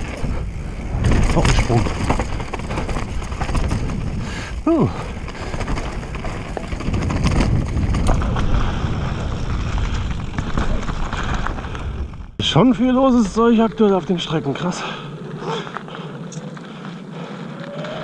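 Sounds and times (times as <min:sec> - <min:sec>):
wind buffeting microphone: 0:00.0 - 0:16.5
bike rattling and knocking: 0:00.0 - 0:17.3.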